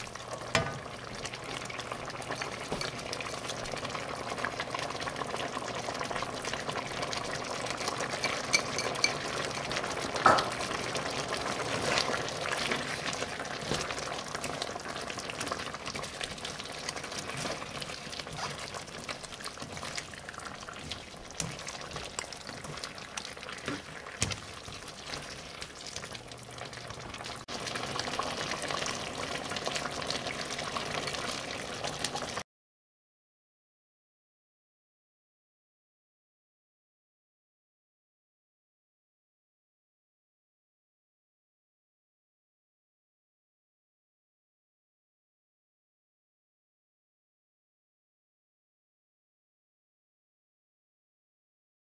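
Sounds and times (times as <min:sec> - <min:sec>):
curry sizzling and bubbling: 0:00.0 - 0:32.4
spatula scraping wok: 0:11.5 - 0:26.1.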